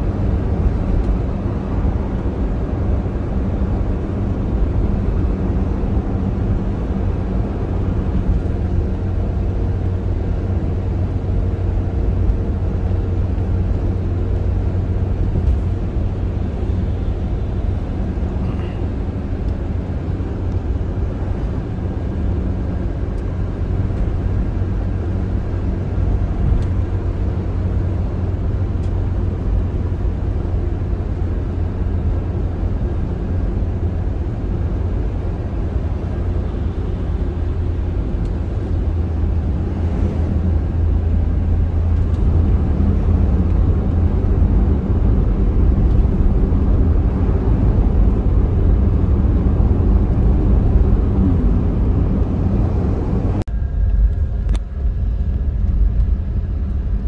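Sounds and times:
car tyres and engine rumble: 0.0 - 57.0.

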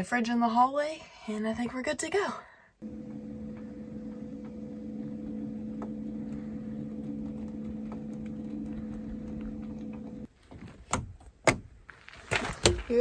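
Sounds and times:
low mechanical hum: 2.8 - 10.3.

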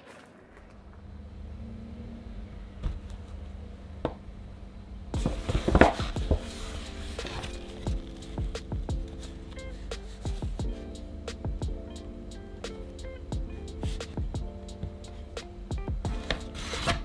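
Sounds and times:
low steady hum: 0.3 - 17.0
paper bag rustling: 5.3 - 10.4
paper crinkling: 5.3 - 10.4.

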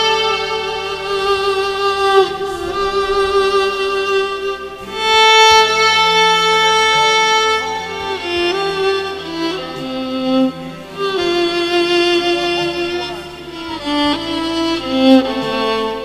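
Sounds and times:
violin playing slow melody: 0.0 - 16.0.

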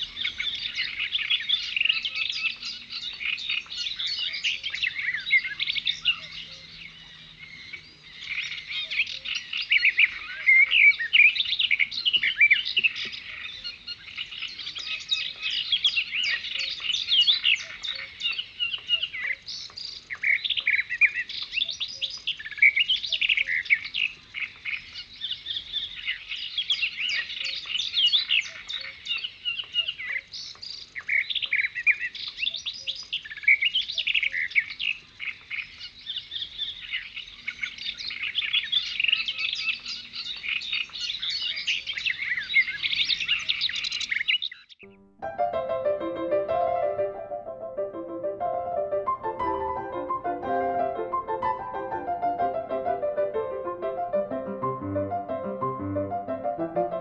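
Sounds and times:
small birds chirping: 0.0 - 45.0.

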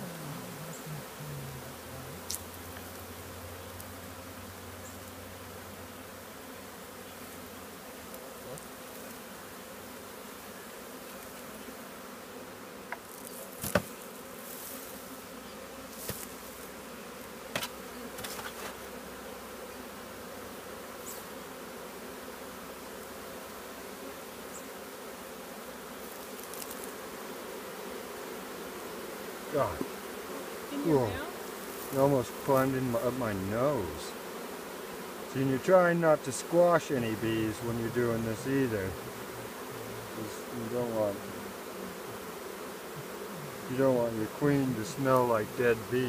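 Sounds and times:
bees buzzing: 0.0 - 46.0
hive boxes knocking and clicking: 12.9 - 14.0, 17.4 - 18.8.

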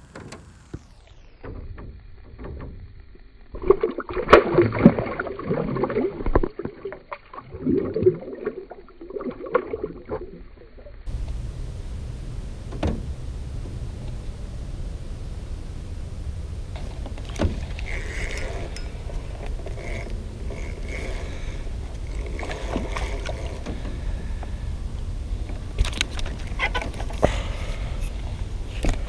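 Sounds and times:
steady low rumble: 2.0 - 29.0
water splashing: 3.5 - 11.1, 16.7 - 28.0.

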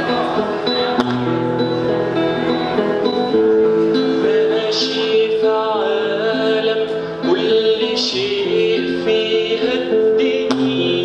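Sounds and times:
acoustic guitar strummed and picked: 0.0 - 11.0
man singing: 3.9 - 11.0.

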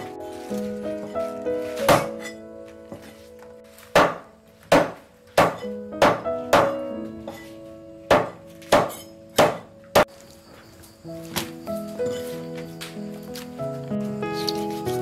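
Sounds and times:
background music: 0.0 - 15.0
cleaver chopping on wooden board: 1.9 - 2.1, 3.9 - 6.8, 8.1 - 10.1.

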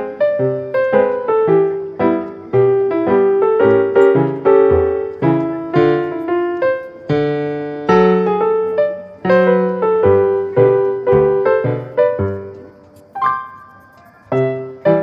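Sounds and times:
piano notes and chords: 0.0 - 15.0.

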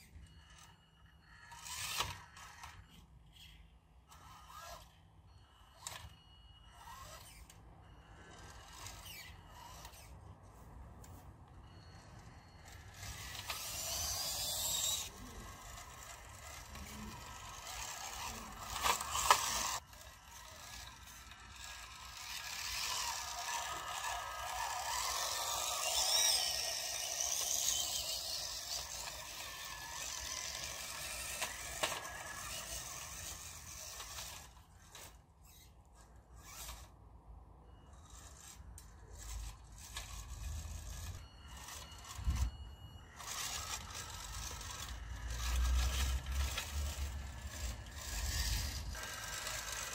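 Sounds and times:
toy truck motor whirring: 0.0 - 49.9.

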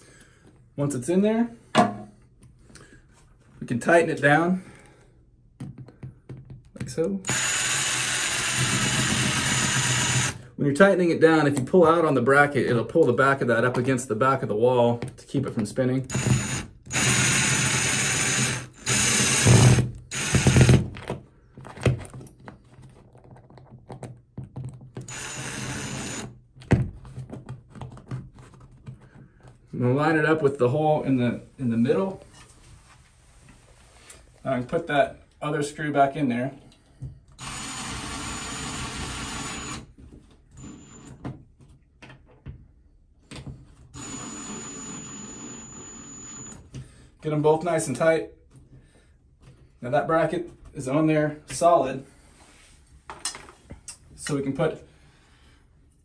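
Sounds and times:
cordless power driver running: 7.3 - 10.4, 16.1 - 20.8, 25.1 - 26.3.

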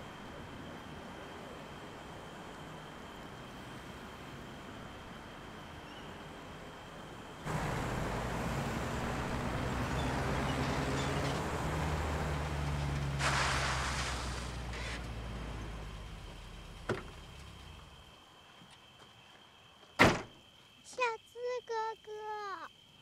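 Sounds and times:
car engine running: 7.5 - 18.0
brief rushing hiss: 12.9 - 15.1.

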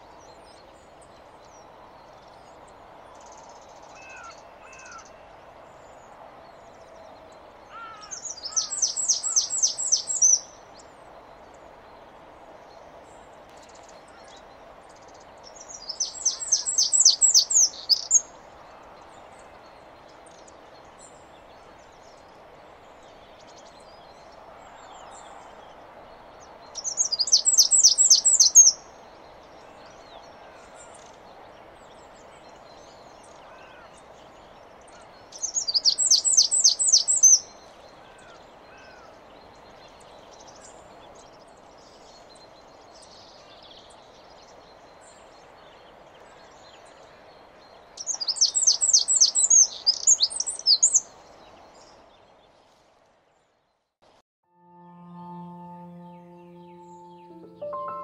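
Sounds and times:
wren rapid high notes: 54.5 - 58.0.

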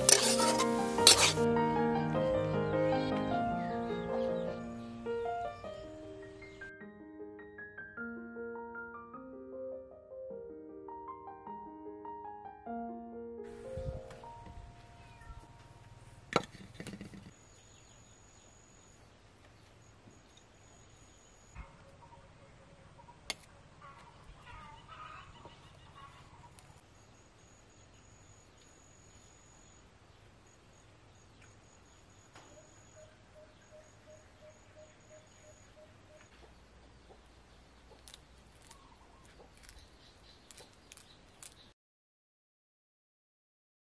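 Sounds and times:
birds chirping: 2.3 - 6.7, 17.1 - 41.8.

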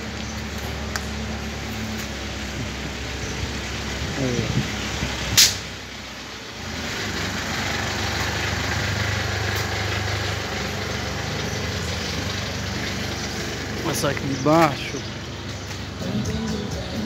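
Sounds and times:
vehicle engine running: 0.0 - 17.0
sharp click: 5.4 - 5.6.

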